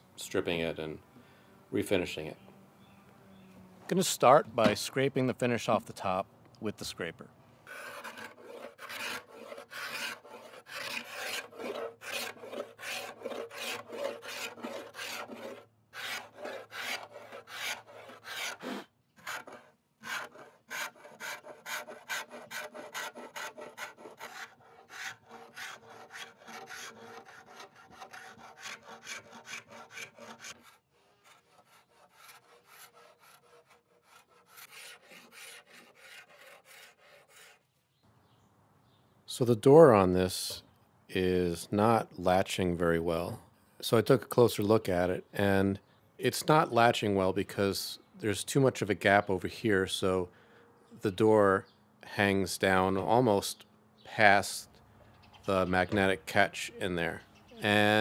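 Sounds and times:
paint scraper scraping wood: 7.7s - 37.7s.

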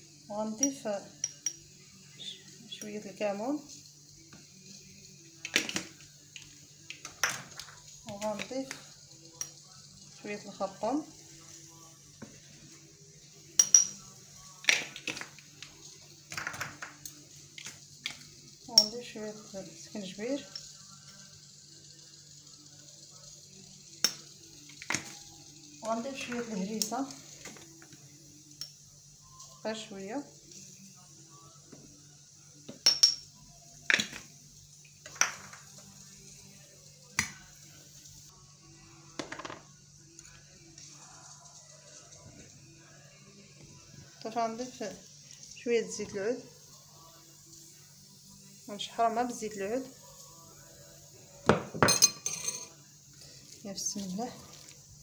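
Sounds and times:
metal spoon tapping frying pan: 13.6s - 14.0s, 18.7s - 19.1s.

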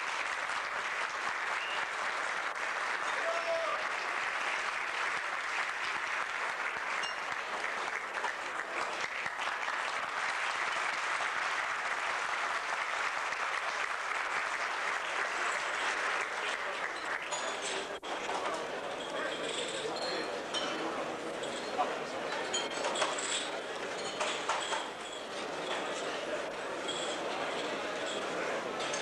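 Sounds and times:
audience applauding: 0.0s - 18.0s.

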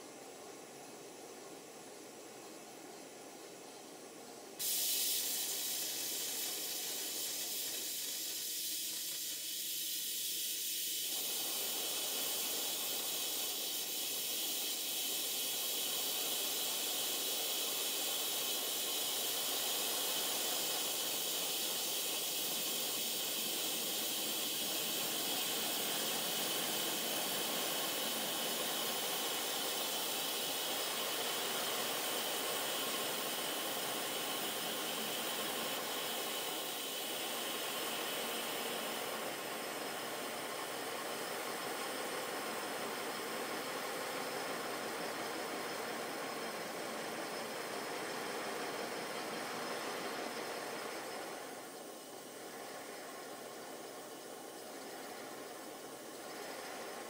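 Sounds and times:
model steam locomotive hissing: 0.0s - 57.0s.

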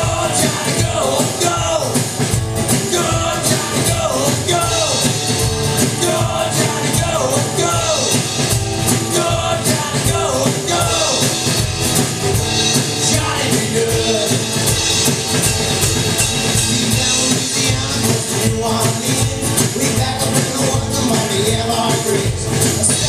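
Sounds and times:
person singing: 0.0s - 2.0s, 2.7s - 5.2s, 5.8s - 8.3s, 9.0s - 11.4s, 12.9s - 14.6s, 16.5s - 23.0s
drum kit beat: 0.0s - 23.0s
strummed acoustic guitar: 0.0s - 23.0s.

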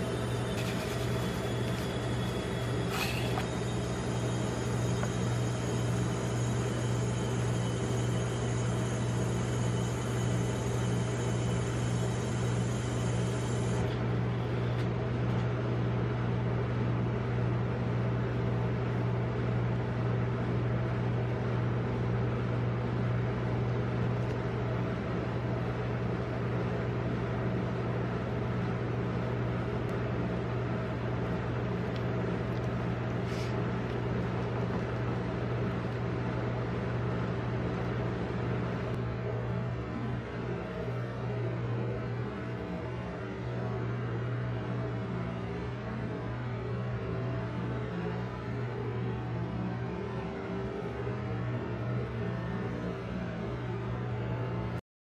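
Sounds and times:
refrigeration compressor humming: 0.0s - 54.7s.

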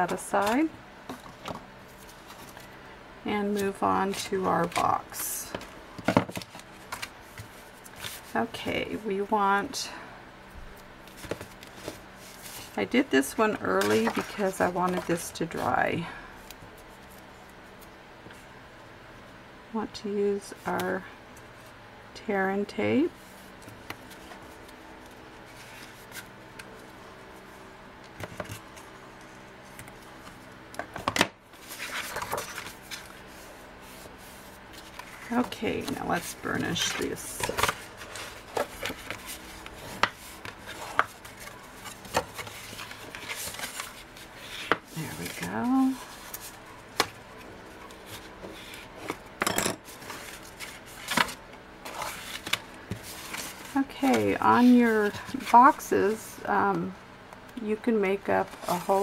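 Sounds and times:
paper rustling and rubbing: 6.3s - 8.5s, 23.2s - 27.5s, 31.6s - 49.2s, 49.9s - 56.2s, 58.4s - 59.0s.

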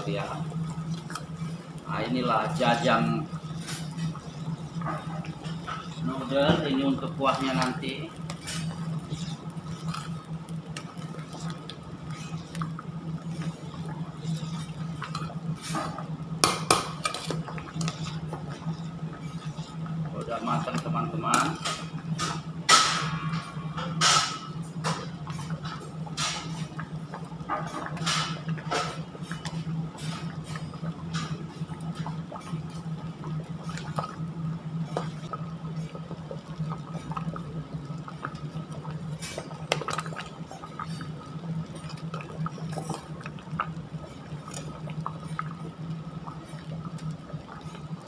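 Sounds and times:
steady low hum: 0.0s - 48.0s
thick sauce bubbling in a pot: 0.0s - 48.0s
bubbles popping: 25.1s - 48.0s.

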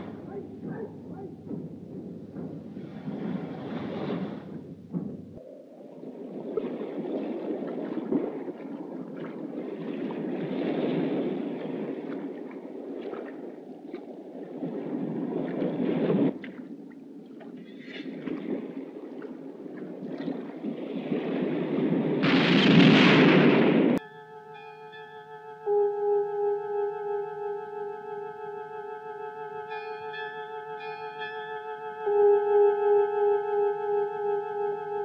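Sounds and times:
sea surf washing: 0.0s - 24.0s.

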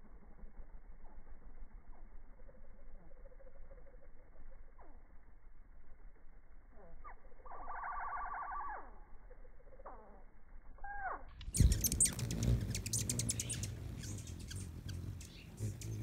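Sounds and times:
slowed hummingbird calls: 6.7s - 16.0s
hummingbird chips and clicks: 6.8s - 16.0s.

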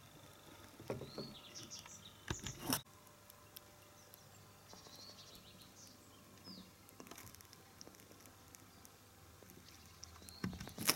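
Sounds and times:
birds chirping and whistling: 0.3s - 2.8s, 3.8s - 6.8s, 9.5s - 10.9s.

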